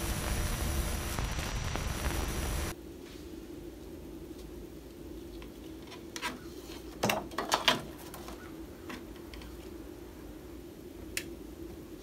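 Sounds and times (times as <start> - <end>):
steady low hum: 0.0 - 5.8.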